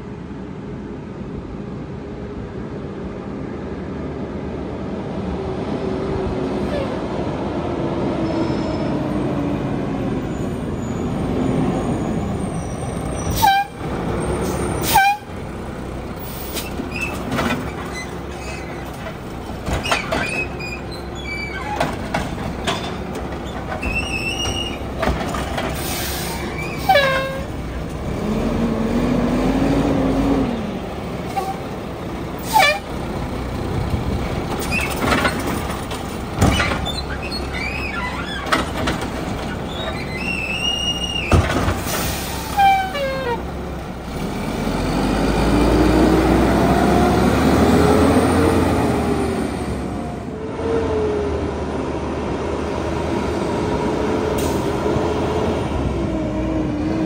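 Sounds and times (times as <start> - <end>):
brake squeaks: 16.3 - 19.1, 19.7 - 27.6, 31.3 - 31.8, 32.4 - 32.9, 34.6 - 43.5
truck diesel engine running: 20.4 - 50.4
air brake hisses: 25.8 - 26.6, 41.8 - 42.7.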